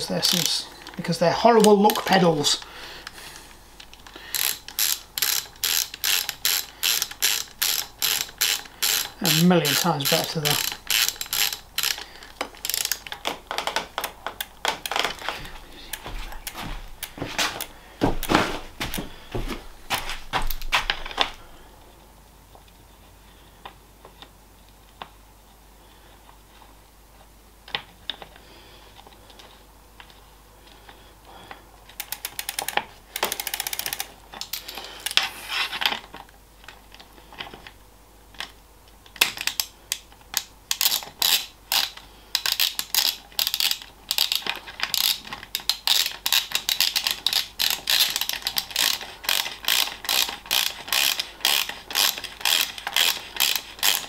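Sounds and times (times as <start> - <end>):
bicycle ratchet clicking: 4.0 - 13.2, 31.9 - 35.3, 39.4 - 54.0.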